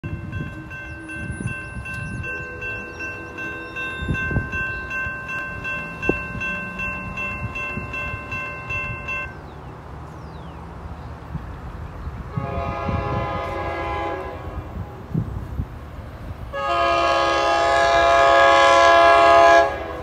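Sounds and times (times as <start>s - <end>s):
railroad crossing bell ringing: 0.0s - 9.7s.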